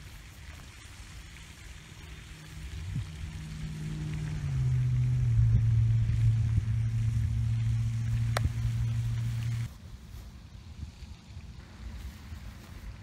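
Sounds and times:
motor humming: 1.6 - 9.7.

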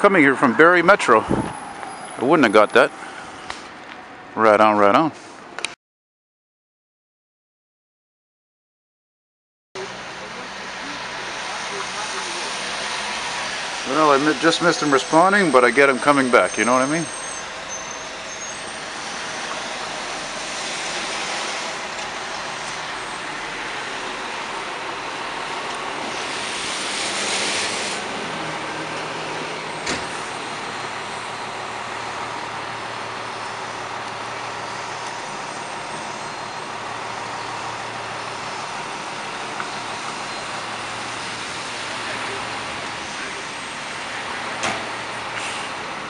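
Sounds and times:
traffic on wet street: 0.0 - 5.8, 9.8 - 46.0
diesel engine running: 9.8 - 46.0
air brake hiss: 26.2 - 28.0, 45.4 - 45.8.

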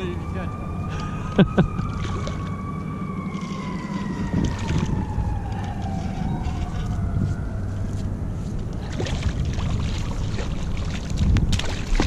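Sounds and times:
distant siren wailing: 0.0 - 10.8
low steady drone: 0.0 - 12.0
fish splashing: 1.7 - 2.6, 3.3 - 7.0, 8.8 - 12.0.

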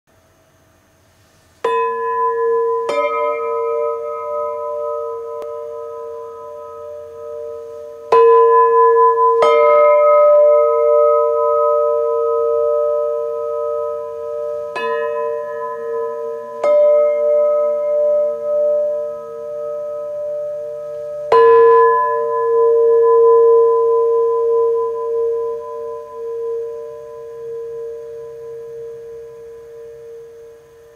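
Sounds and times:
bronze plates struck ringing: 1.6 - 30.9.

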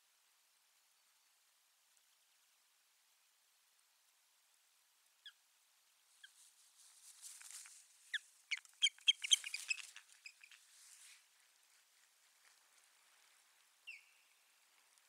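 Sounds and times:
osprey alarm calls: 8.1 - 10.6.

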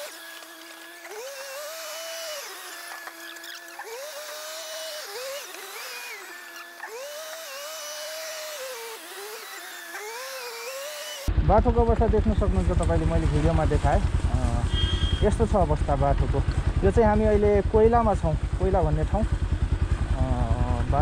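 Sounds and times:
small motor whining: 0.0 - 11.3.

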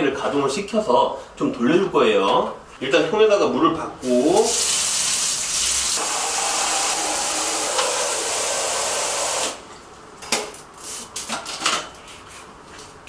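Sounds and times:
water spraying into plastic bucket: 4.0 - 9.6.

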